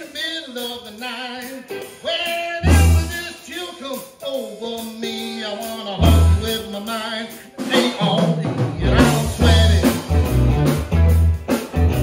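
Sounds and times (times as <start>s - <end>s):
electric blues band playing: 0.0s - 12.0s
heavy accented band hits: 1.4s - 12.0s.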